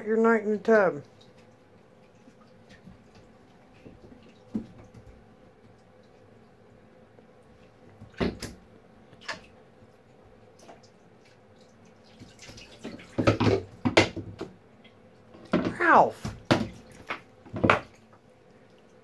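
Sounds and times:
monkeys splashing in water: 10.6s - 14.1s.

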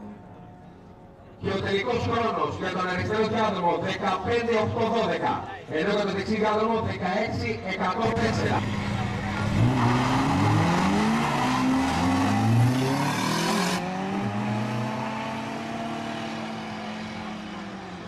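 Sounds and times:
cars accelerating: 8.0s - 18.0s.

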